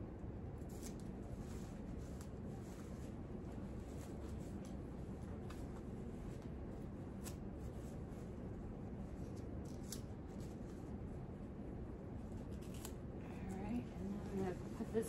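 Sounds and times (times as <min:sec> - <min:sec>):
faint plastic rustling: 0:12.2 - 0:15.0.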